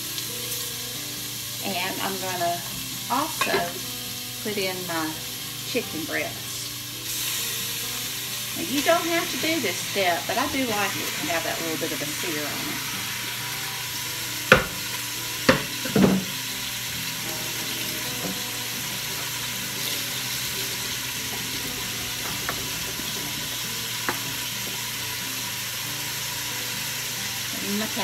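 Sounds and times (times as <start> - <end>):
meat sizzling in a pot: 0.0 - 28.0
spatula knocking on pot: 14.5 - 14.8, 15.5 - 16.3.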